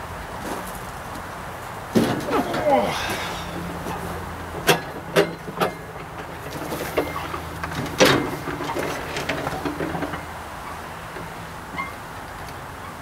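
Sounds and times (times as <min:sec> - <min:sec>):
knocks and clanks of metal parts: 0:01.9 - 0:10.4.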